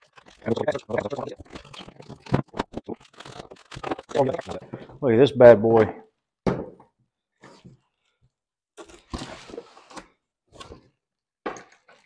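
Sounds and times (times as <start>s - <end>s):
packaging rustling and crinkling: 0.0s - 4.7s.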